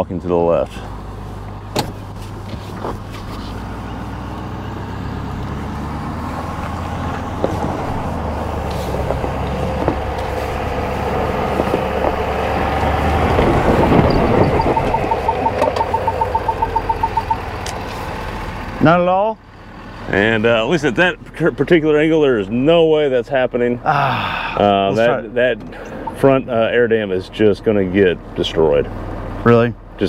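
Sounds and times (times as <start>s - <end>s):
diesel truck engine climbing: 0.0s - 30.0s
knocks from underneath: 8.9s - 10.4s
rapid electronic beeping: 14.0s - 17.5s.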